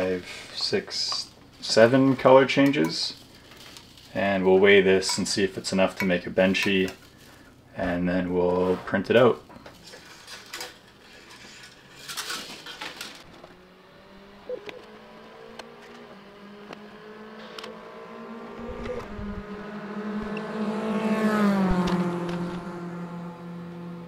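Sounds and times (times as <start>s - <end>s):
rustling and clicks: 9.5s - 13.6s.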